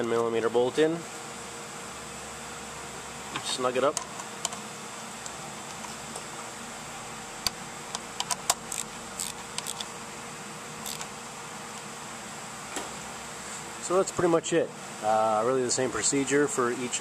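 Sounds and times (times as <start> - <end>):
steady background hum: 0.0 - 17.0
metal clicks of a socket and ratchet: 8.2 - 9.9.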